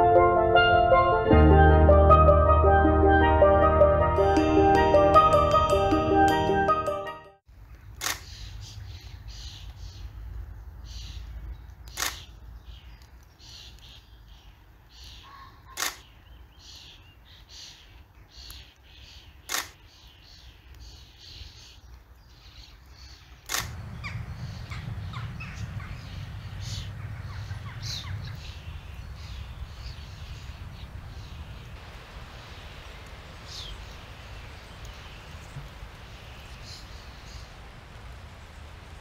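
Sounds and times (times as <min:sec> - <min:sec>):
low wind rumble: 0:00.0 - 0:05.5, 0:23.3 - 0:39.0
camera shutter clicks: 0:08.0 - 0:08.4, 0:11.9 - 0:12.3, 0:15.8 - 0:16.1, 0:19.5 - 0:19.8, 0:23.5 - 0:23.8
faint bird calls: 0:22.4 - 0:31.8.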